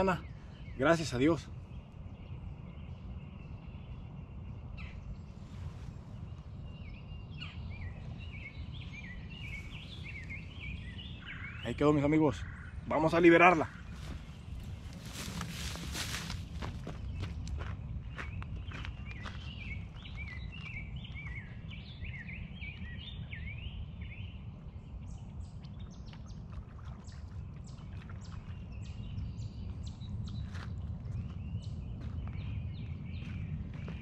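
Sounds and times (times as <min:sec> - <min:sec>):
bird chirping: 0:00.0 - 0:34.0
steady low rumble: 0:01.4 - 0:34.0.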